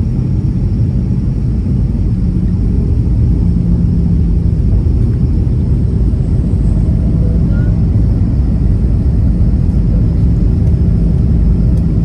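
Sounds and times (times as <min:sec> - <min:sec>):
airliner engines and airflow rumble: 0:00.0 - 0:12.0.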